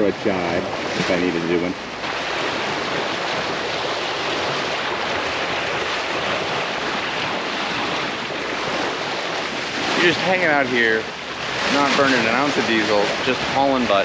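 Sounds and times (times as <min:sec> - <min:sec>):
bow wave rushing along hull: 0:00.0 - 0:14.0.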